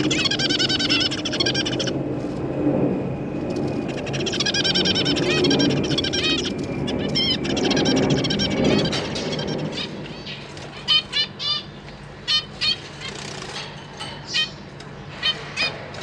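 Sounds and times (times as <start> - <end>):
finches calling: 0.0 - 2.0, 3.8 - 16.0.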